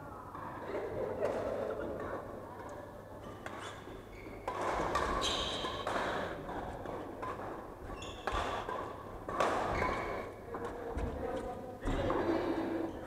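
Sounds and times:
racket striking shuttlecock: 0:04.4 - 0:06.0, 0:08.2 - 0:09.8
shoes squeaking on wooden floor: 0:07.8 - 0:08.6.

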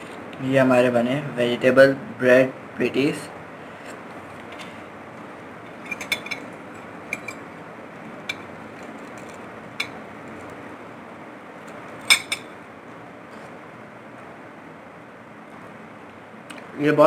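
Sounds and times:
cutlery clinking on ceramic plate: 0:05.8 - 0:06.5, 0:12.0 - 0:12.5.

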